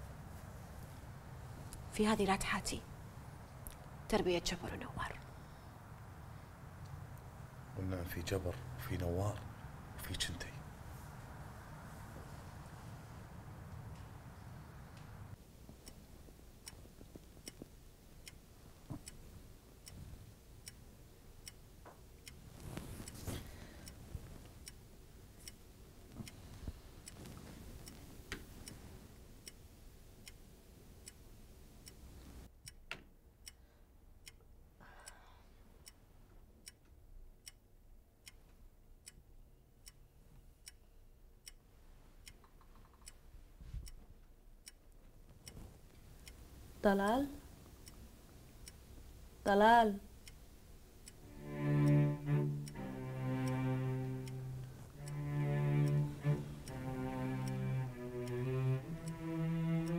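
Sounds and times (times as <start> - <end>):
clock ticking: 15.3 - 59.9.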